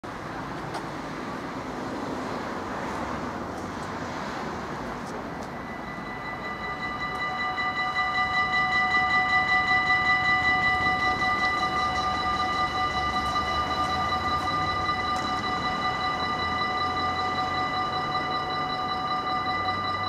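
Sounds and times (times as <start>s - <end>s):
background noise: 0.0s - 20.0s
level crossing bells ringing: 5.3s - 20.0s.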